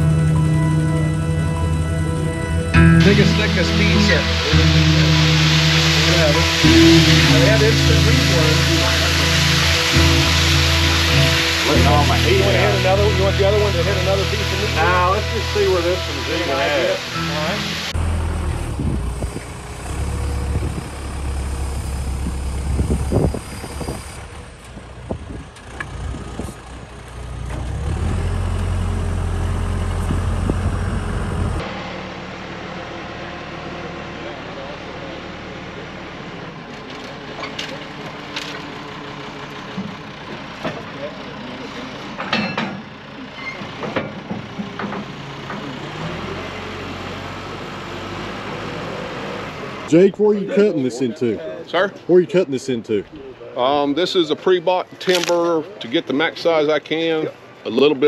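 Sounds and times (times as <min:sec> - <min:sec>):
power unit humming: 0:00.0 - 0:24.8, 0:28.6 - 0:31.9
diesel engine droning: 0:00.0 - 0:57.8.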